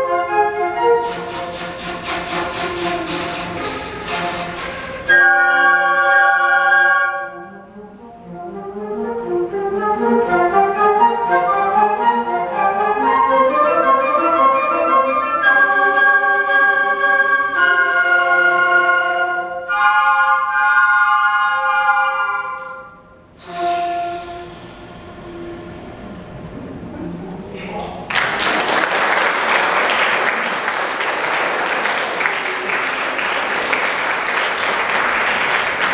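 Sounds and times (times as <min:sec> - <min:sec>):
flute choir playing: 0:00.0 - 0:26.2.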